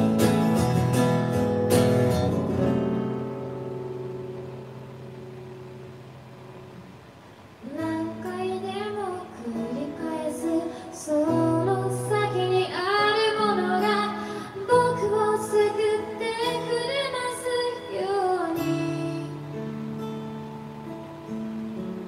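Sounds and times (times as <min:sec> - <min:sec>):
acoustic guitar: 0:00.0 - 0:22.0
woman singing: 0:07.6 - 0:19.6.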